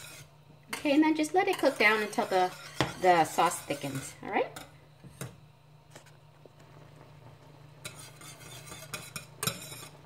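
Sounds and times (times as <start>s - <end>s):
whisk scraping a metal saucepan: 0.0s - 5.3s, 7.8s - 10.0s.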